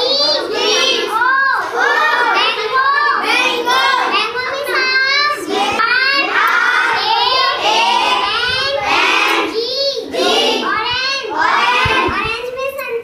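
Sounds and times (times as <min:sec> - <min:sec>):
girl singing: 0:04.1 - 0:13.0.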